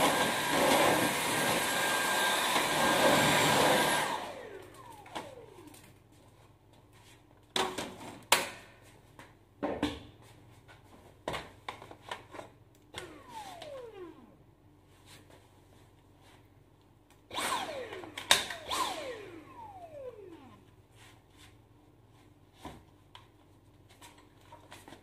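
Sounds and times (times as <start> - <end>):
vacuum motor whining down: 0.0 - 5.8, 13.0 - 14.4, 17.3 - 20.7.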